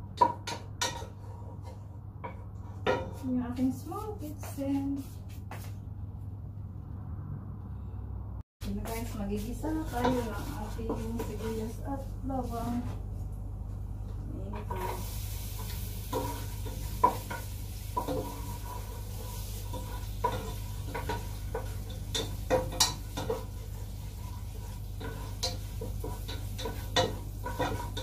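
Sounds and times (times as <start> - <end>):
wooden spatula scraping pan: 8.7 - 13.1, 14.5 - 28.0
garlic sizzling in oil: 14.6 - 28.0.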